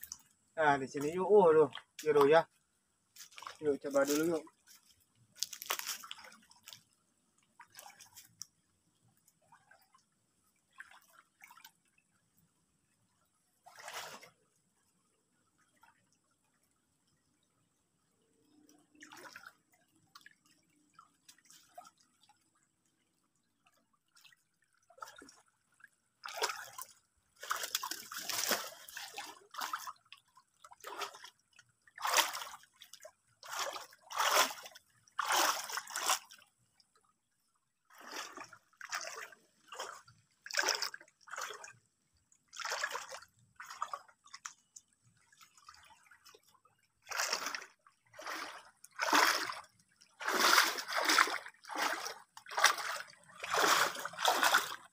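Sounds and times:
water drips and trickles: 0.0s - 54.9s
hands splashing in water: 26.2s - 29.9s, 50.2s - 54.9s.

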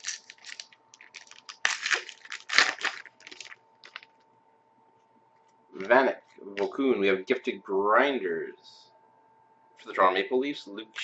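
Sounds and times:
foil wrapper crinkling: 0.0s - 4.1s.

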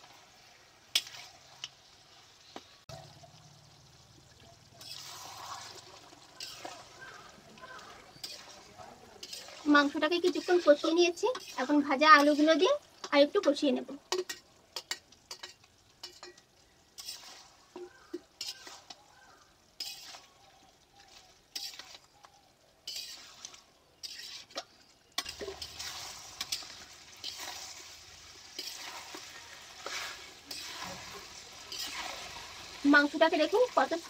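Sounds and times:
meat and potatoes sizzling: 0.0s - 34.0s
spatula scraping a pan: 0.8s - 2.3s, 4.7s - 13.2s, 14.1s - 16.4s, 17.0s - 19.0s, 19.7s - 20.4s, 21.0s - 22.1s, 22.8s - 33.8s
spatula clinking against pan: 14.1s - 16.5s.

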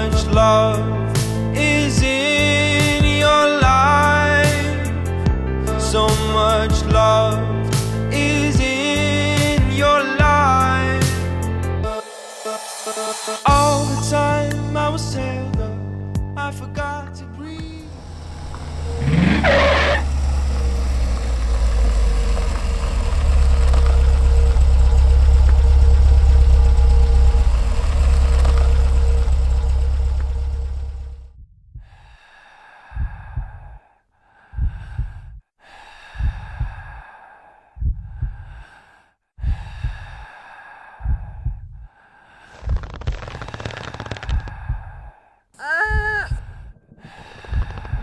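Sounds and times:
truck engine rumbling: 17.3s - 31.4s, 46.5s - 48.0s
soft pulses with low thump: 17.6s - 32.1s, 32.9s - 33.8s, 34.4s - 37.0s, 37.6s - 38.8s, 39.4s - 40.3s, 40.9s - 43.4s, 44.2s - 48.0s.

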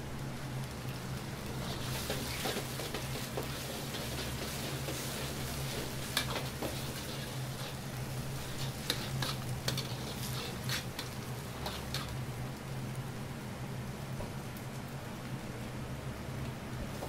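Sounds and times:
sauce simmering and sizzling: 0.0s - 17.0s
steady kitchen hum: 0.0s - 17.0s
metal ladle scraping wok: 1.6s - 7.8s, 8.4s - 12.2s.

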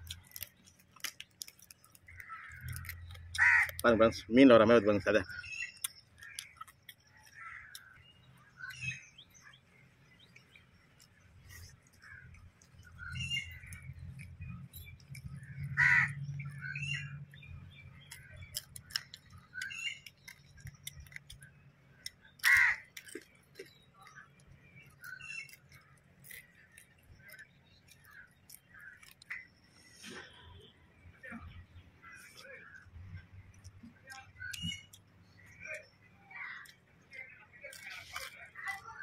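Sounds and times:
person eating with hands: 0.0s - 4.2s, 5.2s - 30.3s, 31.2s - 35.9s, 36.5s - 39.0s
small birds chirping: 0.0s - 39.0s
crows cawing: 2.1s - 3.9s, 7.3s - 8.0s, 15.6s - 16.8s, 22.4s - 22.9s.

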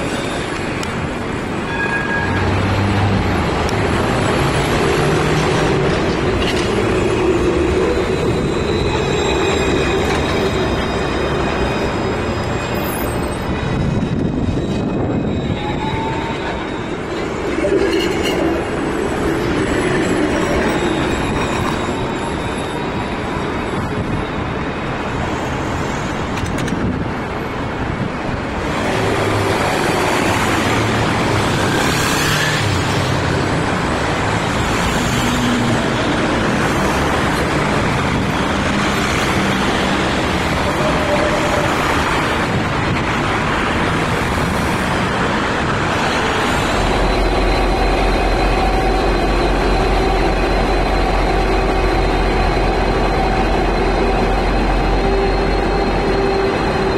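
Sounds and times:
road traffic: 0.0s - 56.9s
trams running past: 0.0s - 56.9s.

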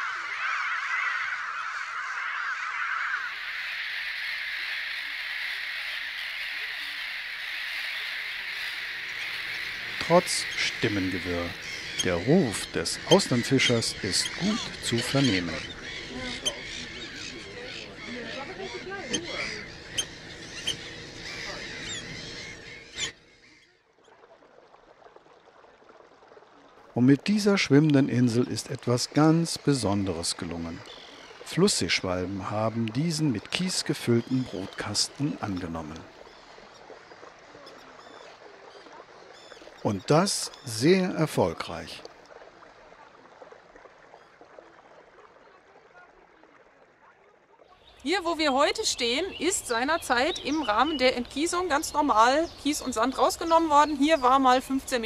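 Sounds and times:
oystercatcher piping calls: 0.0s - 23.6s, 30.4s - 36.0s
gull colony calling: 0.0s - 23.7s, 28.3s - 36.6s
faint lapping water: 0.0s - 55.0s.

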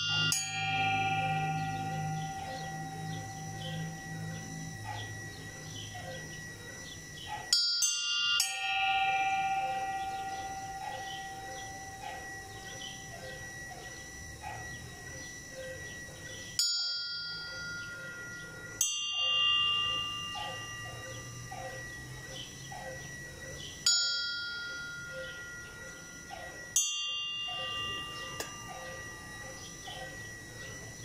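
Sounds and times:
church bells tolling: 0.0s - 31.0s.

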